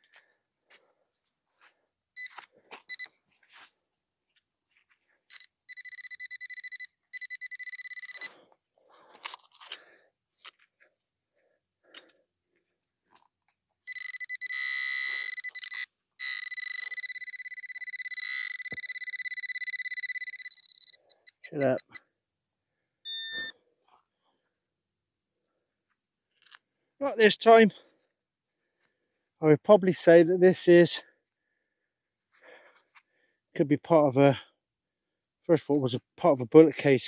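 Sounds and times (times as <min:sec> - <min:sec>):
metal detector fast-pulsing beep: 0:02.2 - 0:03.1, 0:05.3 - 0:08.3, 0:13.9 - 0:22.0, 0:23.1 - 0:23.6
soil crunching and scraping: 0:08.8 - 0:10.7.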